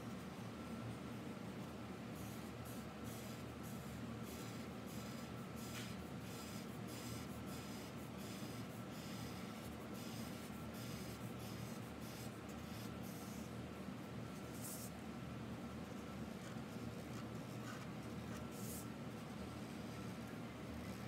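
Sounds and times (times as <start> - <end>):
steady low hum: 0.0 - 21.0
marker scratching on paper: 2.2 - 13.5, 14.5 - 14.9, 16.4 - 18.9.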